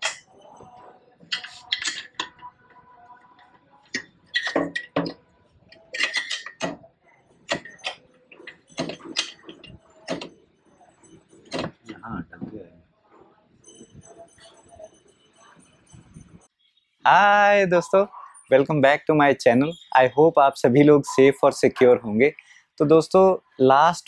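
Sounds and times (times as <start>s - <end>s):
metal clinks and knocks: 6.0s - 12.0s.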